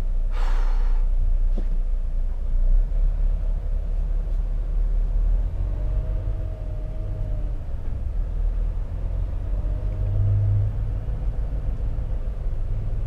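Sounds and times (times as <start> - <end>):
truck diesel engine rumbling: 0.0 - 13.0
short air hiss: 0.3 - 1.1.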